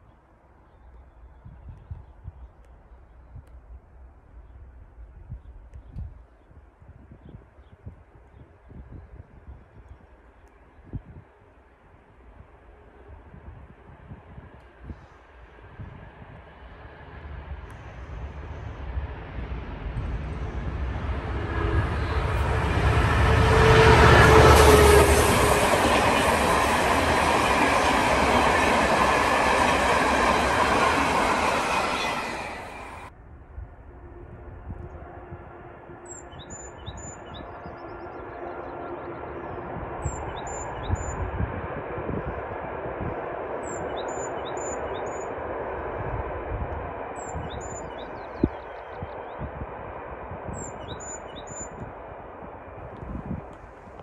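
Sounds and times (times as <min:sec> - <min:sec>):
distant train rumble: 0:00.0 - 0:54.0
diesel locomotive engine passing: 0:14.0 - 0:54.0.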